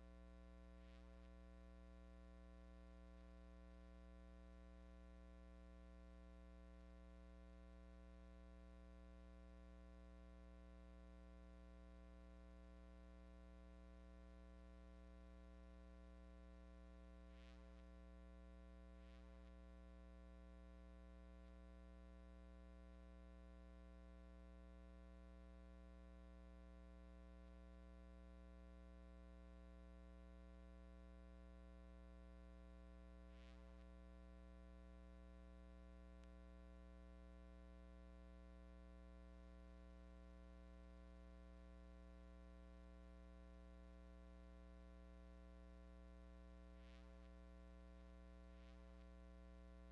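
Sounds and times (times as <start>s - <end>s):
low electrical hum: 0.0s - 49.9s
faint ticks: 36.2s - 36.4s.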